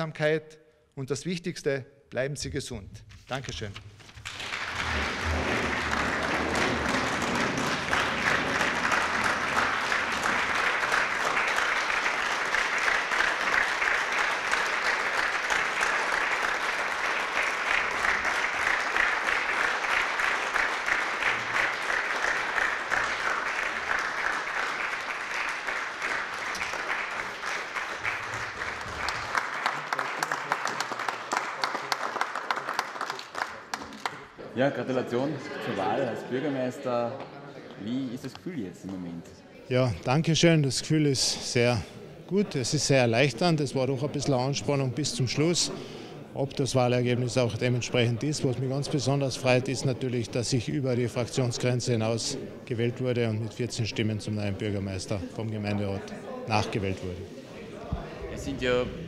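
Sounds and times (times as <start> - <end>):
audience applauding: 4.1 - 34.4.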